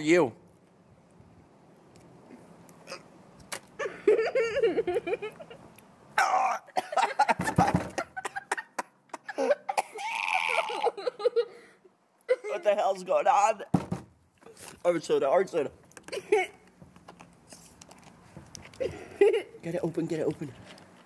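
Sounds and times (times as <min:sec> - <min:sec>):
man coughing and spluttering: 0:06.3 - 0:07.2, 0:09.4 - 0:11.0, 0:16.1 - 0:16.6
man groaning in pain: 0:09.4 - 0:11.0.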